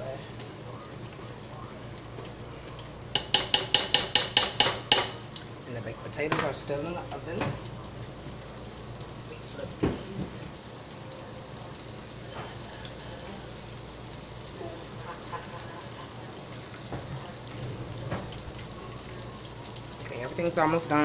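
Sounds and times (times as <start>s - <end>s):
meat sizzling in a skillet: 0.0s - 21.0s
pot boiling: 0.0s - 21.0s
skillet knock: 3.1s - 5.2s, 9.8s - 10.4s.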